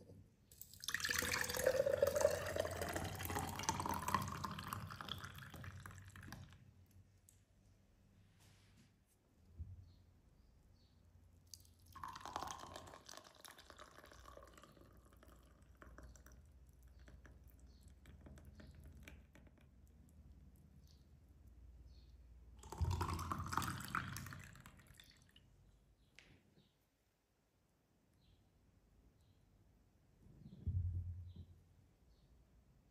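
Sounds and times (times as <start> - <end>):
drink pouring into glass: 0.6 - 6.6, 11.6 - 17.4, 22.6 - 25.4.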